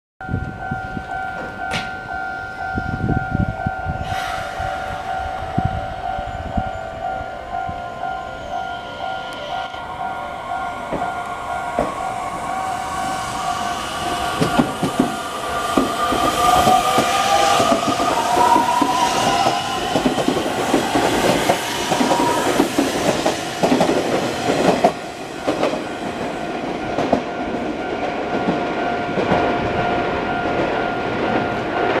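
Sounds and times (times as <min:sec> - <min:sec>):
steady ringing tone: 0:00.2 - 0:23.6.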